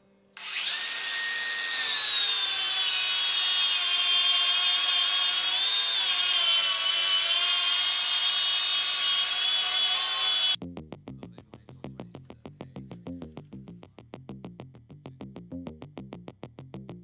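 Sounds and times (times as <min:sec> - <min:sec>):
angle grinder grinding steel: 0:00.4 - 0:10.6.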